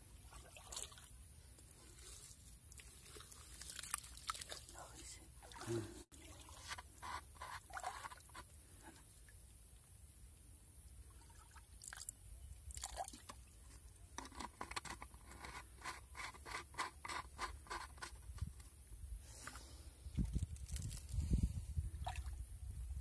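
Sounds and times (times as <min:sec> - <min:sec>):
plastic bottle scrapes and clicks: 0:06.6 - 0:08.5, 0:14.2 - 0:18.8.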